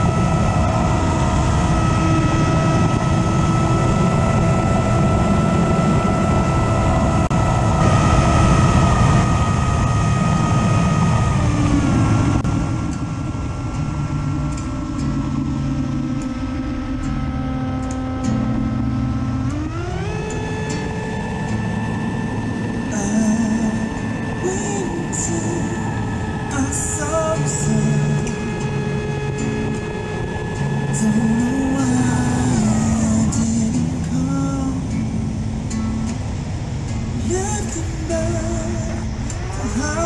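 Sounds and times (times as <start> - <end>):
electric motor and propeller whining: 0.0 - 40.0
rushing air: 0.0 - 40.0.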